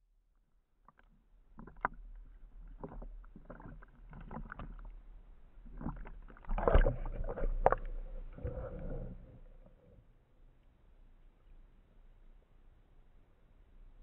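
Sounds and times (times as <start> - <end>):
sea water sloshing and splashing: 0.8 - 9.6.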